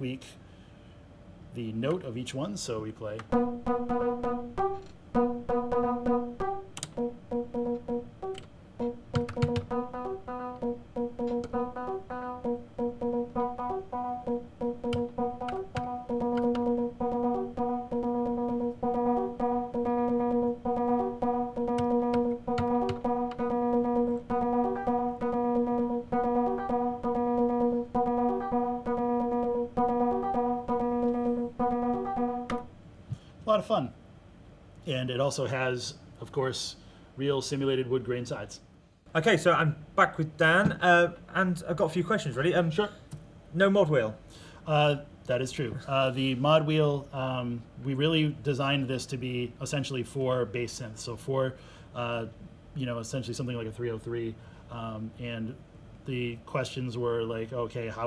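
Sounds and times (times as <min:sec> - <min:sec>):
sequenced bass synth notes: 0:03.3 - 0:32.8.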